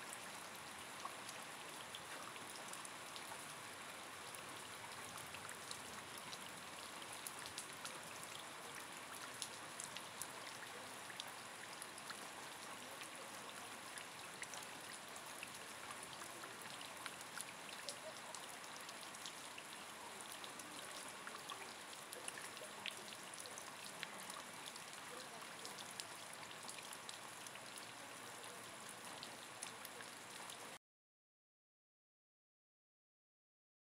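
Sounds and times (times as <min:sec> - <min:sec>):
rain on hard surface: 0:00.0 - 0:30.8
raindrops ticking: 0:05.1 - 0:12.3.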